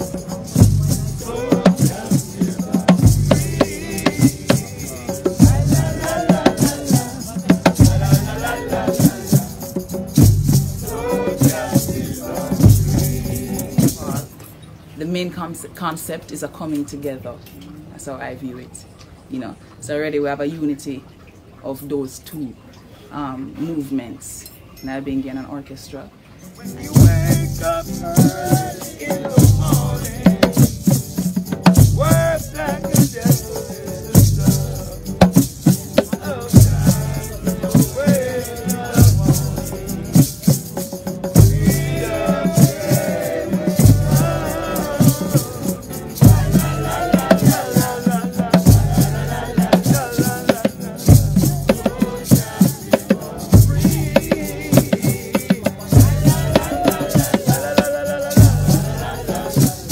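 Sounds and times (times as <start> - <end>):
hand drumming: 0.0 - 14.4, 26.7 - 59.9
voices singing: 0.0 - 14.6, 26.4 - 59.9
acoustic guitar: 0.0 - 59.9.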